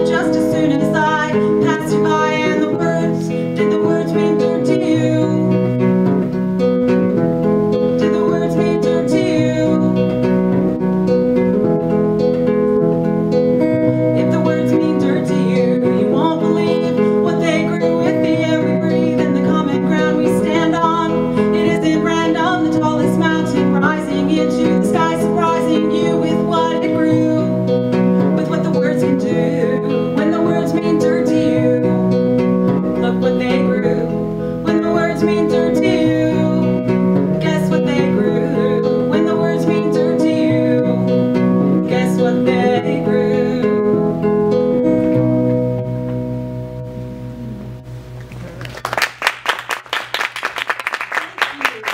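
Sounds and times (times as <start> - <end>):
woman singing: 0.0 - 5.8, 7.8 - 10.3, 14.0 - 44.1
acoustic guitar chords: 0.0 - 50.6.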